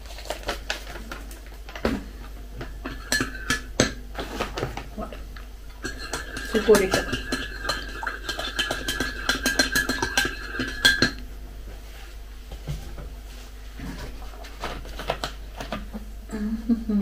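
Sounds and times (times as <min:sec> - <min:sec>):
spoon clinking in ceramic mug: 0:02.8 - 0:04.0, 0:05.8 - 0:11.2
faint knocks and rustles: 0:11.6 - 0:15.8.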